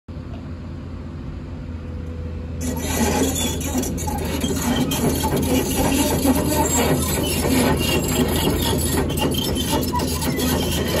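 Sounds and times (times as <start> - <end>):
excavator diesel engine running: 0.9 - 11.0
steel tracks clanking: 2.6 - 11.0.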